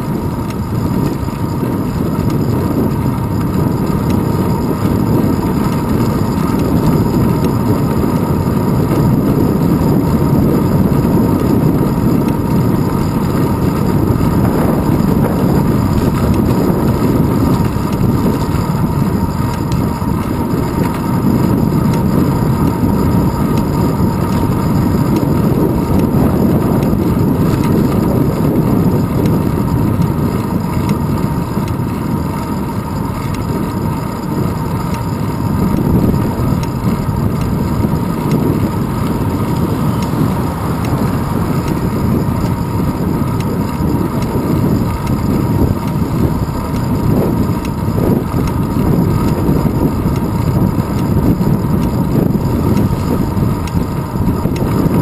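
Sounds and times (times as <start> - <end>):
bicycle road vibration: 0.0 - 55.0
wind rumble over camera: 0.0 - 55.0.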